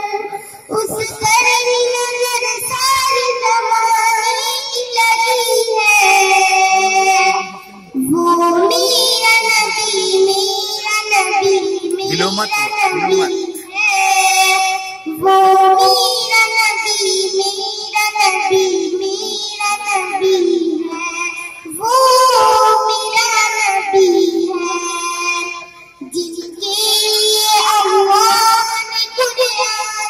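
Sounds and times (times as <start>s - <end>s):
child singing a hymn: 0.0s - 30.0s.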